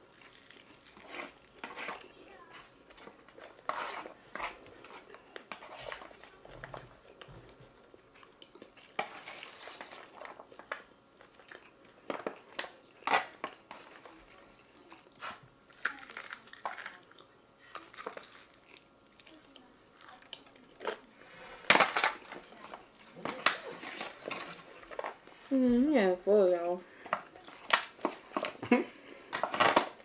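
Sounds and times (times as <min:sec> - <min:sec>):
plastic cutlery scraping foil trays: 0:00.0 - 0:06.9, 0:09.0 - 0:10.8, 0:19.3 - 0:25.2, 0:27.0 - 0:30.0
people chewing: 0:00.0 - 0:30.0.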